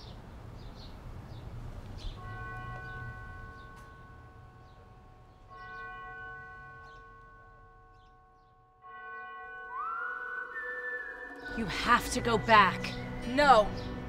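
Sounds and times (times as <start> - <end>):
bell ringing: 2.2 - 13.4.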